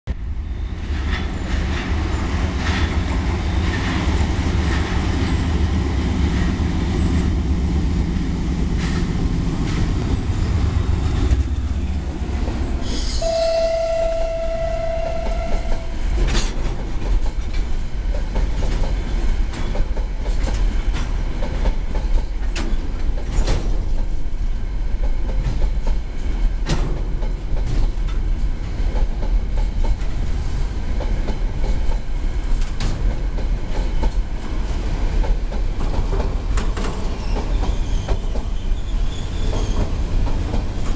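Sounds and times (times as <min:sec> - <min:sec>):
diesel locomotive engine passing: 0:00.2 - 0:23.2
train wheels clacking over rail joints: 0:00.9 - 0:07.3, 0:08.6 - 0:10.2, 0:15.2 - 0:24.2, 0:25.0 - 0:40.9
steady high-pitched tone: 0:12.8 - 0:16.2.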